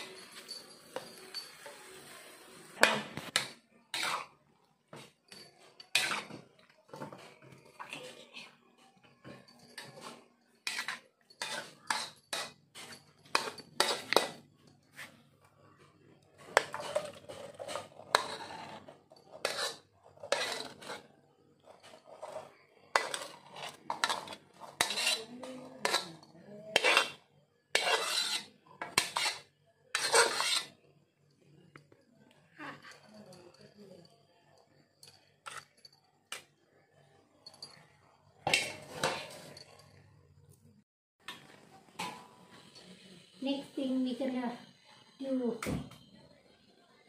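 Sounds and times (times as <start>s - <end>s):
spatula scraping a pan: 0.0s - 8.6s, 9.2s - 15.2s, 16.4s - 30.8s, 35.4s - 35.7s, 38.4s - 39.8s.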